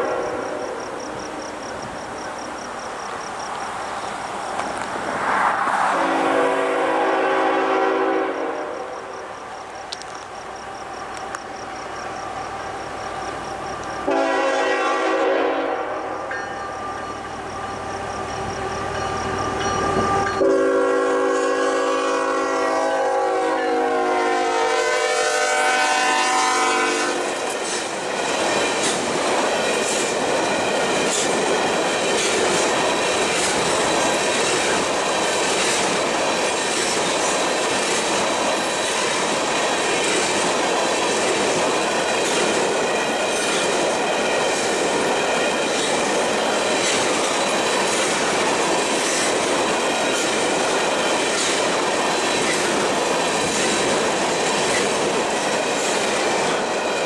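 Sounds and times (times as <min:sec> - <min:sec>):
train horn chord: 0:00.0 - 0:00.7, 0:05.9 - 0:08.9, 0:14.0 - 0:17.8, 0:19.5 - 0:27.3
train wheels rumbling over rails: 0:00.0 - 0:24.5, 0:25.9 - 0:57.0.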